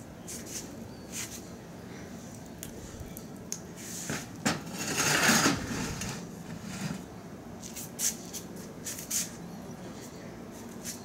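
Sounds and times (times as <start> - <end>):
tile scraping across metal drum rim: 4.0 - 7.1.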